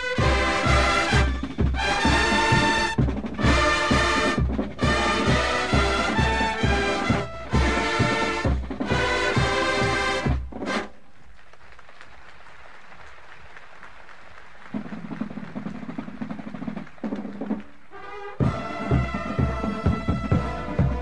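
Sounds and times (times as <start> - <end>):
brass chord: 0.0 - 10.9, 17.9 - 21.0
brass and drums playing: 0.0 - 11.0, 14.8 - 21.0
recording hiss: 0.0 - 21.0.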